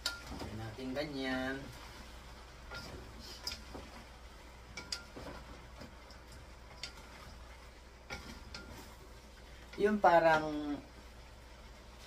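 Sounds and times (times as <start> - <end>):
wooden spatula scraping a wok: 6.6 - 10.5.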